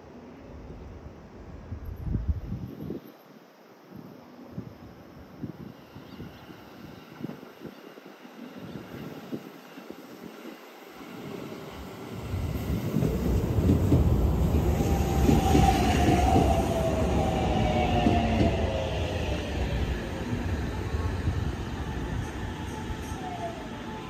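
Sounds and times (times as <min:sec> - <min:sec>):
wheels rumbling on rail: 0:10.1 - 0:24.0.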